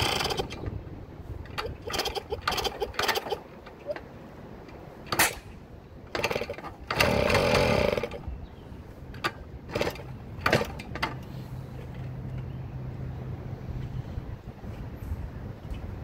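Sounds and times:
motorcycle engine sputtering: 0:00.0 - 0:00.7, 0:01.5 - 0:04.0, 0:06.1 - 0:08.3, 0:09.7 - 0:11.1.

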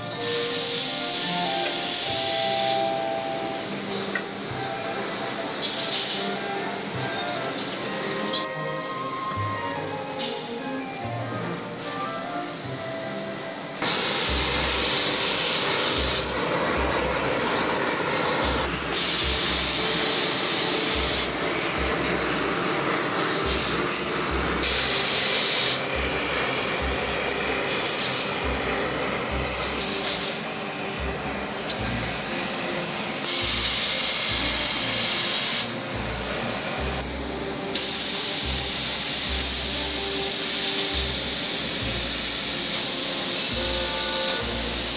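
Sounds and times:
gas burners hissing: 0:00.0 - 0:44.9.

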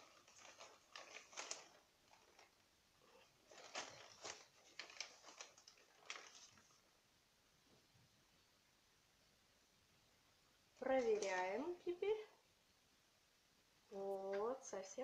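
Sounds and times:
soil rustling: 0:00.0 - 0:02.6
plastic bag crinkling: 0:00.0 - 0:06.9, 0:10.8 - 0:12.1.

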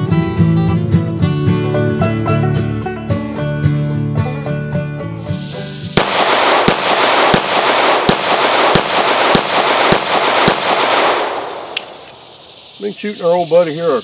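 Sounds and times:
pistol shots with echo: 0:05.9 - 0:12.8.

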